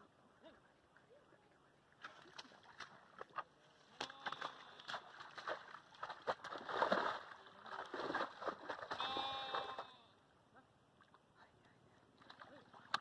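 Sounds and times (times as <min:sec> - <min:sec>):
bare feet splashing through mud: 0:02.0 - 0:10.0.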